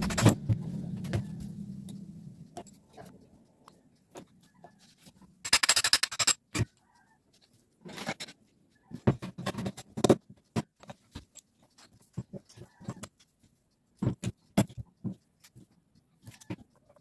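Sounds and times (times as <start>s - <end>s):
metallic clicks of hand tool on parts: 5.4s - 6.8s.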